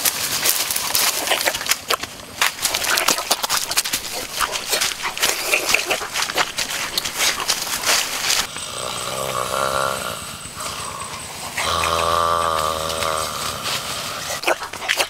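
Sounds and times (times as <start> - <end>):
footsteps through leaves: 0.0 - 8.5, 12.8 - 14.8.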